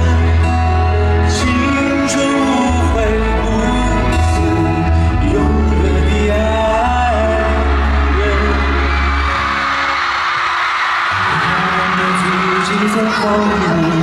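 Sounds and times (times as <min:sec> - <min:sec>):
man singing pop ballad: 0:00.0 - 0:10.0, 0:11.1 - 0:14.0
backing track with strong bass: 0:00.0 - 0:10.4
crowd noise: 0:00.0 - 0:14.0.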